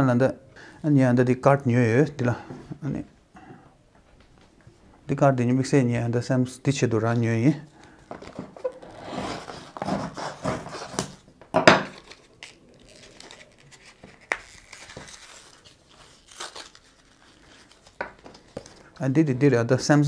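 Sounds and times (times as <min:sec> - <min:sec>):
knife cutting blister pack: 0:08.2 - 0:11.2, 0:11.9 - 0:18.8
plastic pack crinkling: 0:11.9 - 0:19.0.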